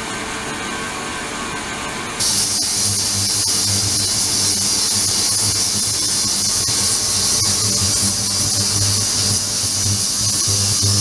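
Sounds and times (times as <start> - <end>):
ultrasonic cleaner hissing: 2.2 - 11.0.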